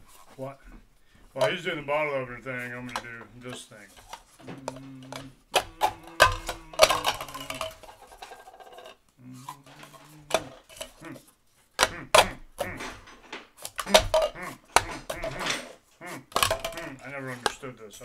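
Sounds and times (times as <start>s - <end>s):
plastic cups knocking on tabletop: 1.4s - 1.6s, 2.8s - 9.0s, 9.6s - 11.1s, 11.8s - 17.7s.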